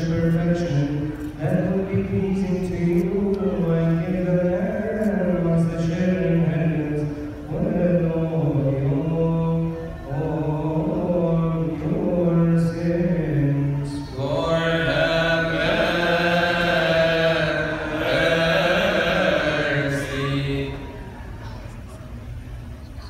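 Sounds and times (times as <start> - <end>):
man chanting: 0.0 - 20.9
choir of voices chanting: 14.1 - 21.2.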